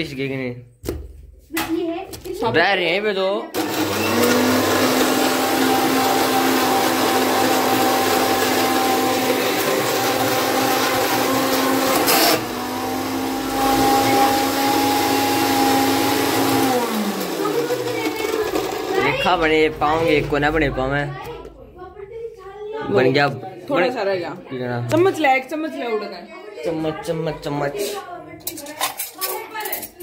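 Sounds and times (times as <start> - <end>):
mixer grinder motor whine: 3.6 - 20.8.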